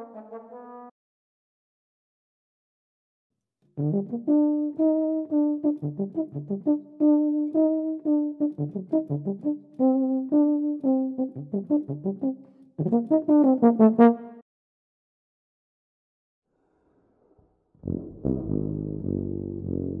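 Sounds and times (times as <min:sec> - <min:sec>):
solo brass melody: 0:00.0 - 0:00.9, 0:03.8 - 0:14.4.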